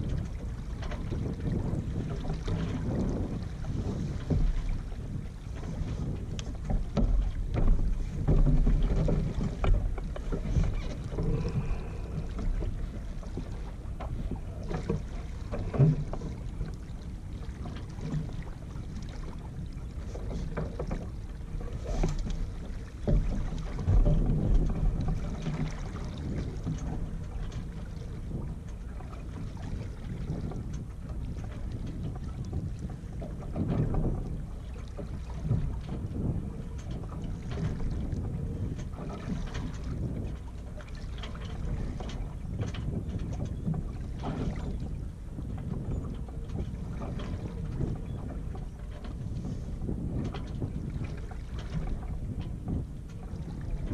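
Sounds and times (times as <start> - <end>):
water along hull: 0.0 - 53.9
wind gusting on microphone: 0.0 - 53.9
knocks and clicks of lines: 6.0 - 11.7.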